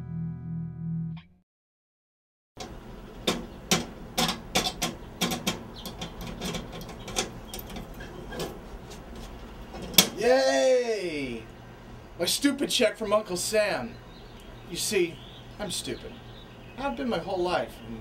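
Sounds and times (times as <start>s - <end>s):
sharp metallic clicks and knocks: 2.6s - 8.6s.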